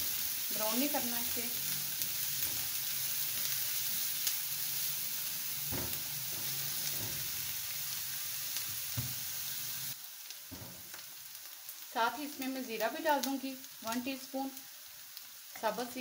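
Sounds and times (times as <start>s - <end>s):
onion sizzling in oil: 0.0s - 16.0s
soft knocks: 5.7s - 7.3s.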